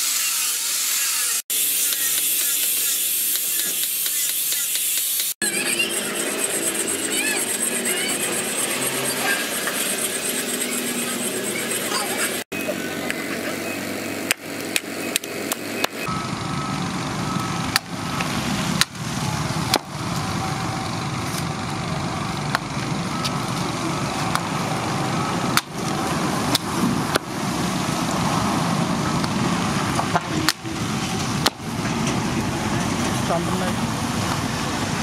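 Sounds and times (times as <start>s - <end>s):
steady background din: 5.4s - 13.8s
axe chopping bamboo: 19.7s - 19.9s.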